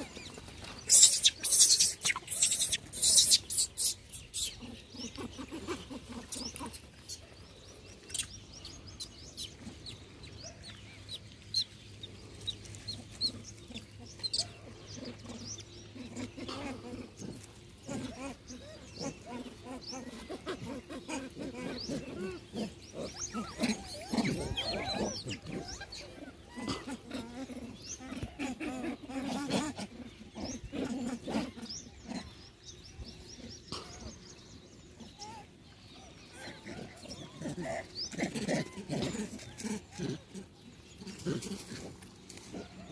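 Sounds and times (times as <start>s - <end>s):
monkeys calling: 0.0s - 11.6s, 12.7s - 32.6s, 33.3s - 42.9s
small animals chirping: 0.0s - 32.6s.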